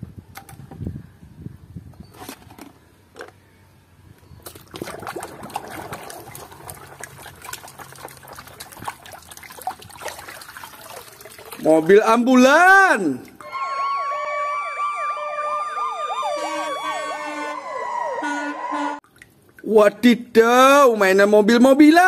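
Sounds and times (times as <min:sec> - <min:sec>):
hand splashing in water: 0:04.4 - 0:11.9.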